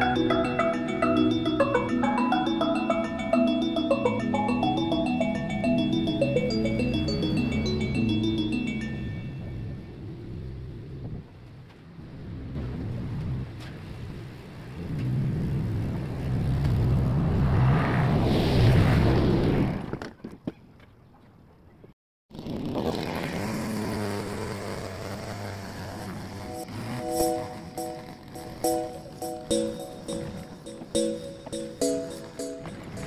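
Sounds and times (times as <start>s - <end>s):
lawn mower running: 22.4s - 28.7s.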